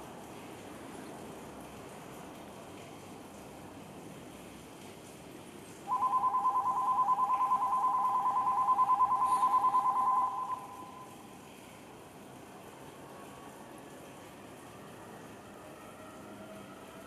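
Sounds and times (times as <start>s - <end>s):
electronic two-tone warbling bell: 5.9s - 11.2s.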